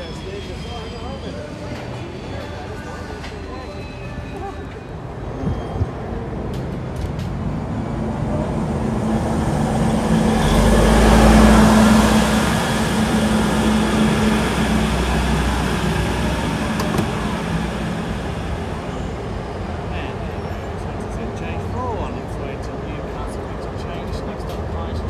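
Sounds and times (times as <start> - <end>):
diesel railcar engine drone: 0.0 - 25.0
wheels rumbling on rails: 1.6 - 23.2.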